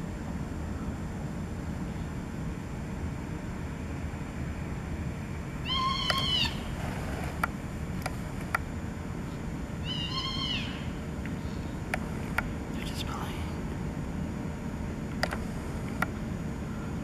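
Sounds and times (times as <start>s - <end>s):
deer fawn bleating: 5.7s - 6.6s, 9.9s - 10.9s.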